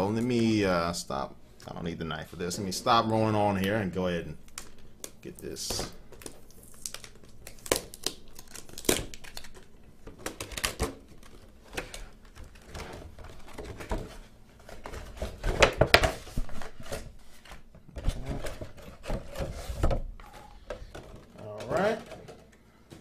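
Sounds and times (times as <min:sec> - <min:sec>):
cardboard packaging rustling: 0:04.5 - 0:22.5.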